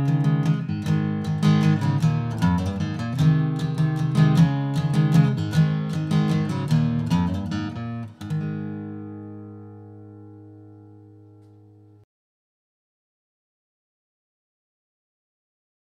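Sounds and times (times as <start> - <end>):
guitar strumming: 0.0 - 12.0.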